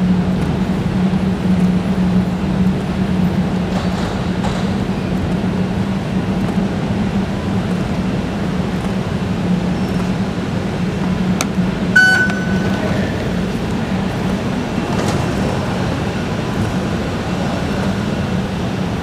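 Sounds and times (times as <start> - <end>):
low machinery hum: 0.0 - 19.0
fare gate click: 12.0 - 13.0
fare gate beep: 12.0 - 13.1.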